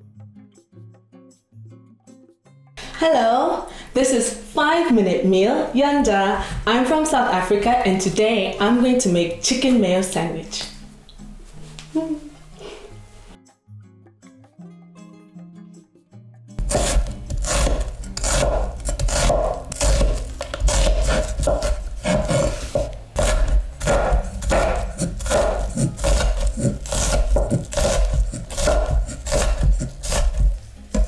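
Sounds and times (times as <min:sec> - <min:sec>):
knife cutting onion on wooden board: 0:16.6 - 0:31.0.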